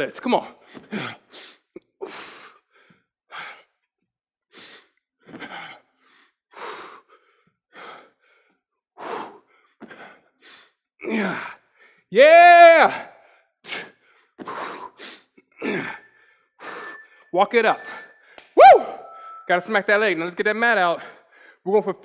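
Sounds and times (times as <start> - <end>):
man breathing hard: 0.6 - 3.8, 4.5 - 12.1, 13.0 - 18.6, 21.0 - 21.7.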